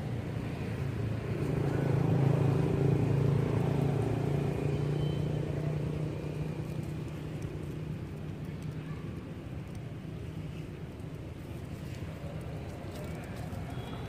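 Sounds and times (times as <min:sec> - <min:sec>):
vehicle engine droning: 0:00.0 - 0:08.7.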